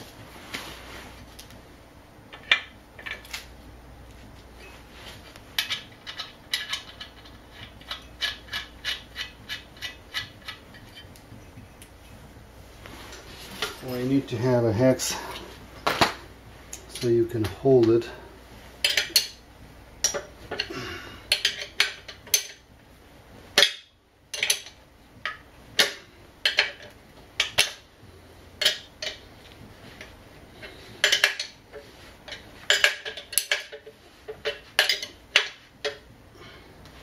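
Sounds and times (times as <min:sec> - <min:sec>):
metal wrench clicking on nut: 0:05.6 - 0:10.6.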